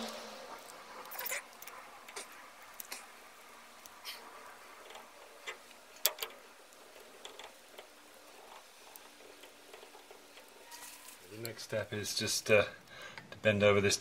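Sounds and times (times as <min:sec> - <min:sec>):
faint clicks and taps: 0:03.8 - 0:11.6.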